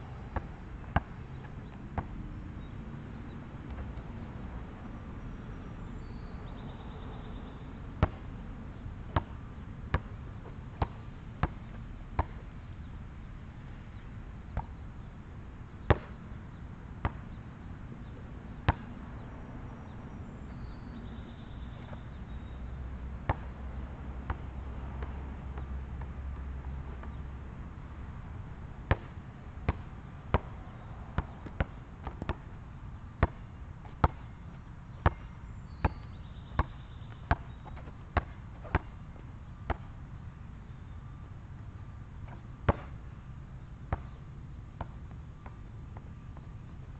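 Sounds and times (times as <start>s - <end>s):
basketball bouncing on asphalt: 0.2s - 2.7s, 6.5s - 13.0s, 14.5s - 14.8s, 15.8s - 16.3s, 17.0s - 17.3s, 18.1s - 22.6s, 23.2s - 27.4s, 28.0s - 40.0s, 42.2s - 43.2s, 43.9s - 44.2s, 44.8s - 46.9s.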